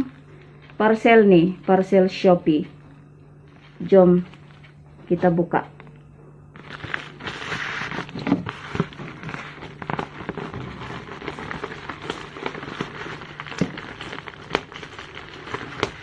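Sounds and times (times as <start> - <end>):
plastic wrapping crinkling: 6.5 - 16.0.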